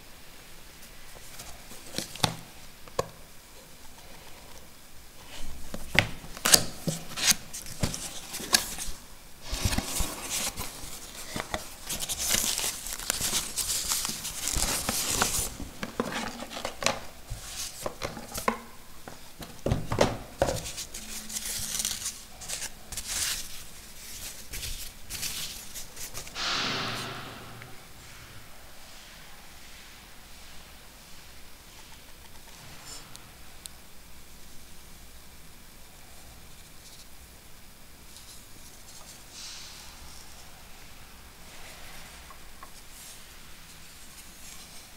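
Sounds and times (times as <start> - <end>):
packaging crinkling and rustling: 5.2 - 26.3.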